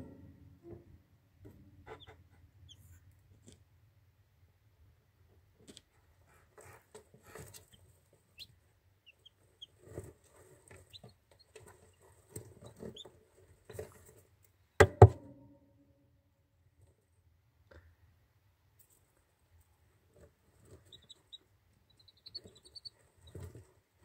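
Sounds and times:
chicks peeping: 1.8s - 3.0s, 7.4s - 13.2s, 20.5s - 23.7s
rustling and scratching in litter: 5.7s - 8.3s, 22.2s - 24.0s.

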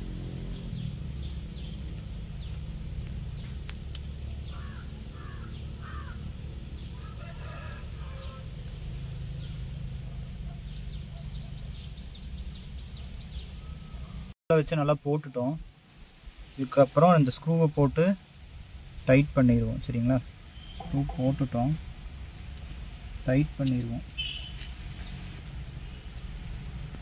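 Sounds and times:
small birds chirping: 0.0s - 14.4s, 18.9s - 27.0s
rooster crowing: 6.8s - 8.8s.

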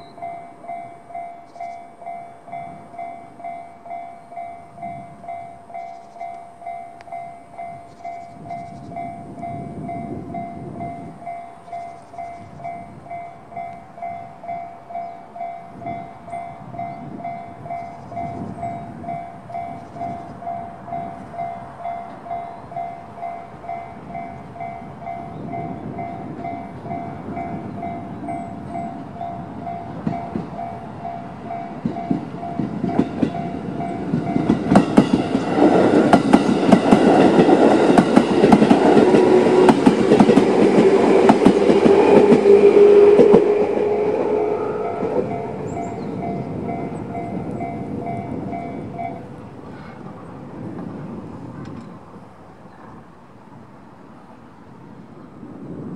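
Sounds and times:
wheels clattering over rail joints: 29.0s - 44.0s
electric train motor tone: 35.2s - 49.4s.

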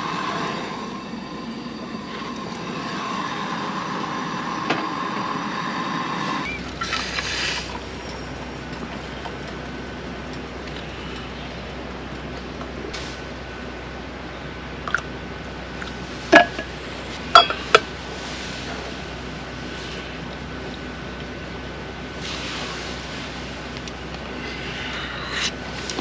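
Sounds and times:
dishes clinking: 16.3s - 16.7s, 17.3s - 17.9s.

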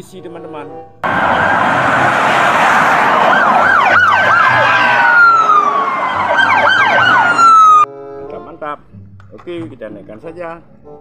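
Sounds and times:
road noise: 0.0s - 9.5s
police siren wail: 1.0s - 7.9s
siren yelps: 1.0s - 7.9s.

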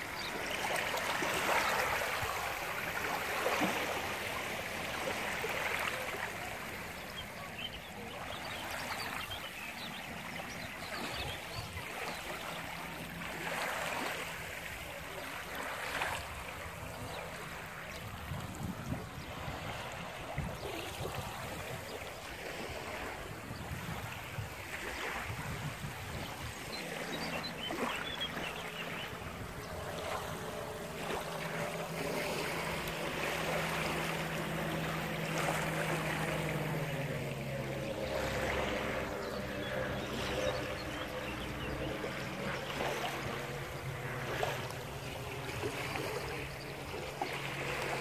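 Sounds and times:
waves lapping on shingle: 0.0s - 48.0s
engine drone: 25.8s - 48.0s.

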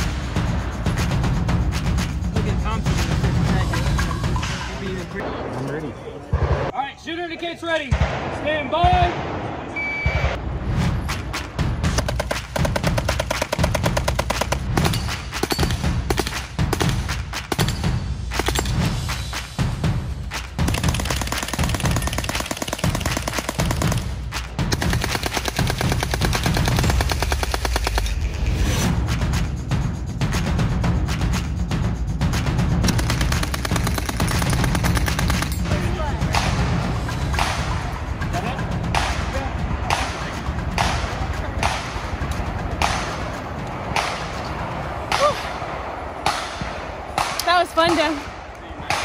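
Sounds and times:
gunshots with echo: 7.9s - 10.4s
submachine gun firing bursts: 12.0s - 17.7s, 20.6s - 24.1s, 24.7s - 28.1s, 32.9s - 35.6s.

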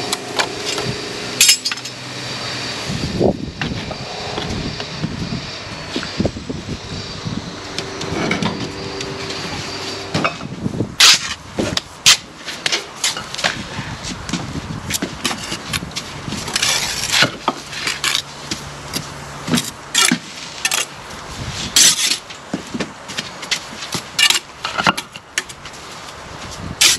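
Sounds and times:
engine hum: 0.0s - 26.8s
trowel scraping mortar: 16.4s - 18.3s.

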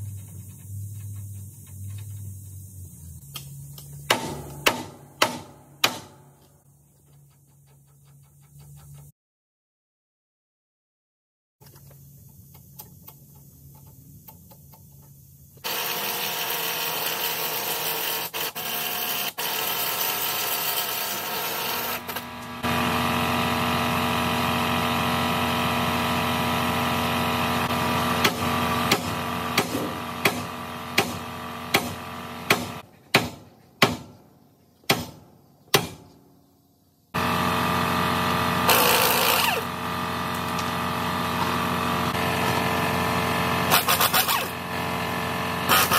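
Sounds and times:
air impact wrench running: 15.6s - 32.8s, 37.2s - 45.9s.

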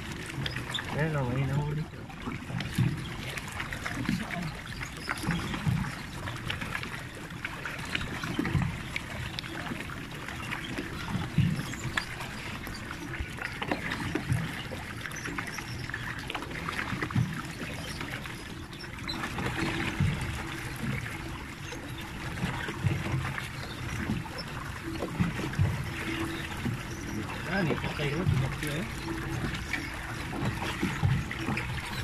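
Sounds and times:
water splashing and churning: 0.0s - 32.0s.

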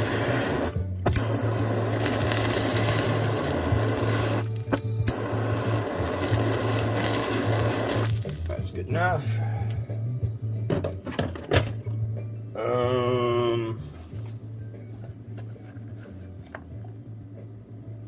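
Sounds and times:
torch igniter click: 0.0s - 8.5s
torch flame hissing: 0.0s - 9.2s.

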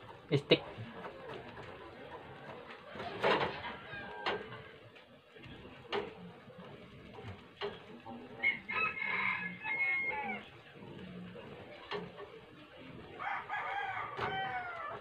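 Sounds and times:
rooster crowing: 2.8s - 4.8s, 8.4s - 10.5s, 13.2s - 15.0s.

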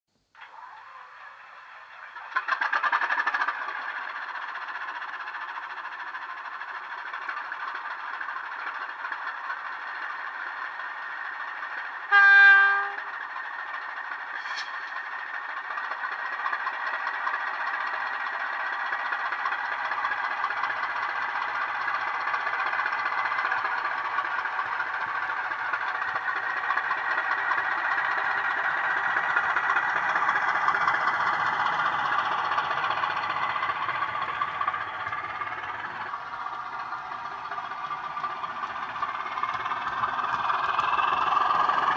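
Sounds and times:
diesel engine running: 0.4s - 41.9s
locomotive horn blast: 12.1s - 13.1s.

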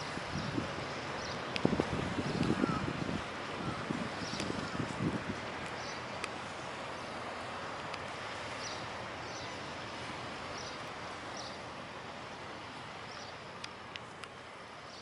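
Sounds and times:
wind and water hiss: 0.0s - 15.0s
small birds chirping: 1.2s - 1.5s, 5.7s - 6.1s, 8.6s - 9.6s, 10.5s - 11.6s.

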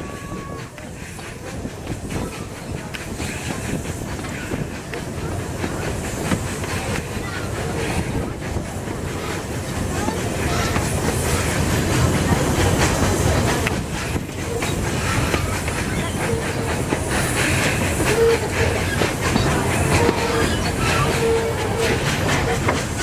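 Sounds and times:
train rumble: 0.0s - 23.0s
wheel squeals: 17.6s - 22.6s.

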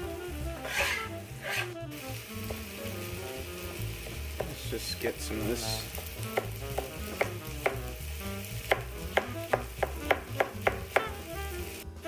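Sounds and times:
onions sizzling in a pan: 0.0s - 12.0s
knife chopping on cutting board: 0.6s - 1.7s, 6.0s - 7.9s, 8.7s - 11.2s.

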